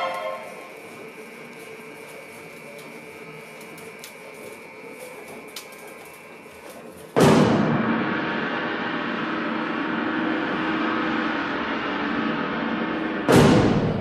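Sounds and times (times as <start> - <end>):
loud gong-like hit: 7.2 - 14.0.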